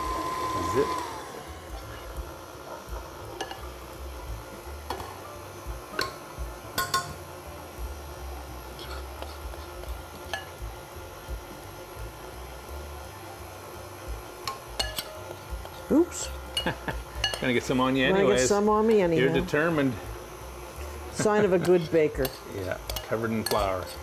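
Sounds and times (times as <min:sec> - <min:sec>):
metal spoon scraping glass bowl: 0:08.8 - 0:10.5, 0:21.6 - 0:24.0.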